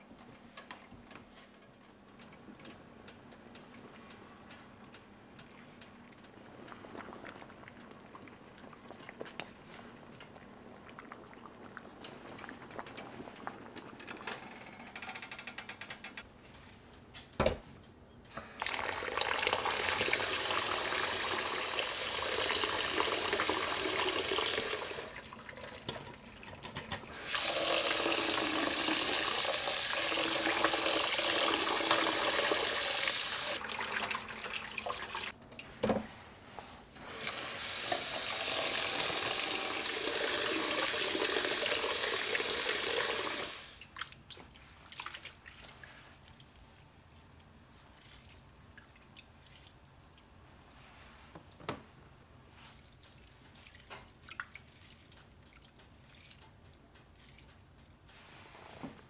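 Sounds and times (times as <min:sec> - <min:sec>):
tap water running into pot: 0:18.6 - 0:35.3, 0:37.2 - 0:43.7
water dripping and splashing: 0:43.8 - 0:50.3, 0:52.7 - 0:58.2.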